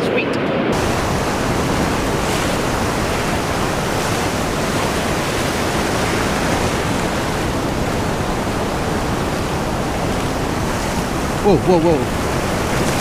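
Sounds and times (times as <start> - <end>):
ocean surf breaking: 0.5 - 13.0.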